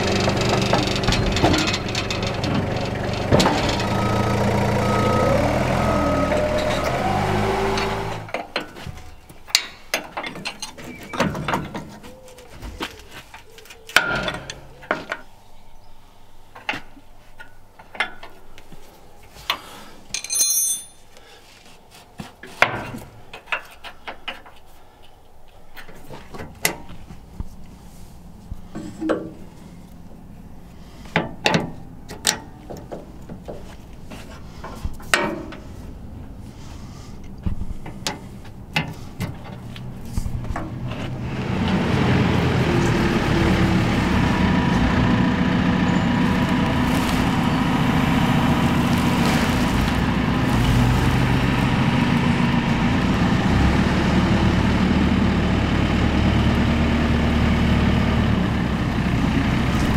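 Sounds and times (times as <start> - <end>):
hand tools clanking on metal: 7.7 - 12.2, 19.5 - 21.2
high metallic ring: 20.2 - 21.1.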